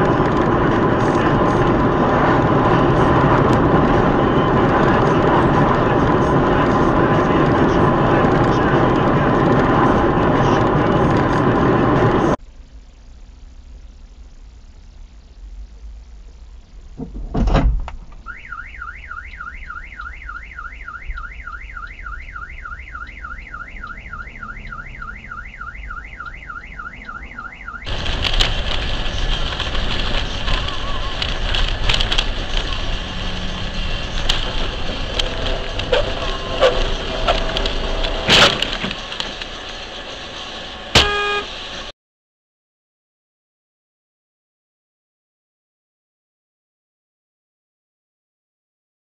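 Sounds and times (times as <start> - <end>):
road noise: 0.0 - 41.9
car alarm warbling: 18.2 - 28.1, 35.8 - 39.2, 40.5 - 41.9
scattered clicks: 27.8 - 33.0, 33.6 - 39.6
sharp bang: 40.9 - 41.5.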